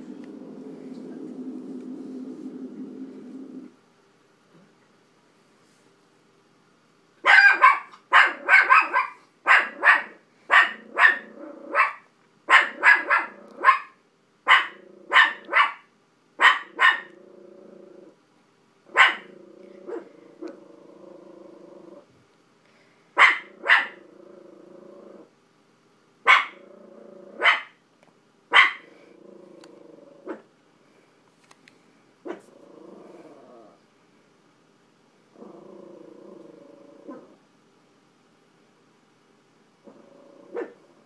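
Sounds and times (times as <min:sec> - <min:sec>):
small dog barking: 0:07.2 - 0:17.2, 0:18.9 - 0:20.2, 0:23.2 - 0:24.0, 0:26.2 - 0:26.6, 0:27.4 - 0:27.8, 0:28.5 - 0:28.9, 0:32.2 - 0:32.5, 0:40.5 - 0:40.8.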